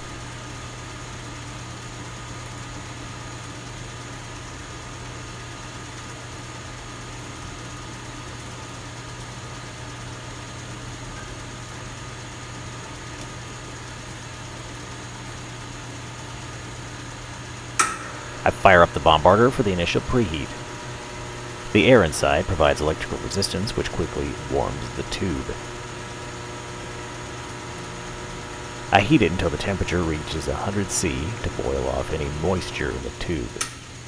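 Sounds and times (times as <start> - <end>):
vacuum pump humming: 0.0 - 34.0.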